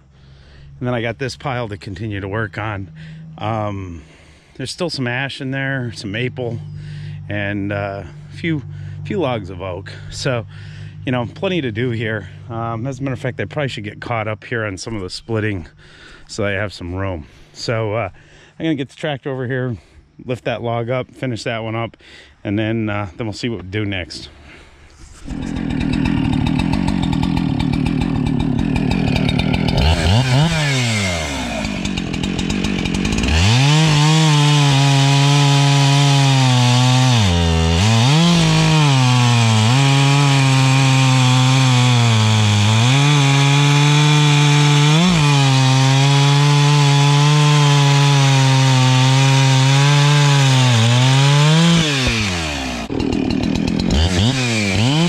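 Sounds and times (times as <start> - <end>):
chainsaw cutting log: 0.6 - 14.0, 24.9 - 55.0.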